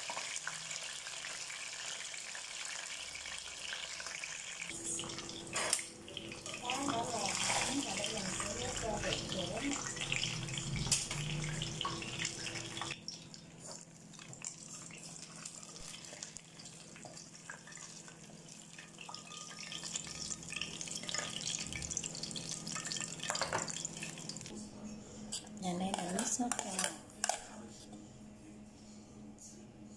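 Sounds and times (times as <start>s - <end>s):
fish sizzling in hot oil: 0.0s - 4.8s, 6.6s - 24.5s.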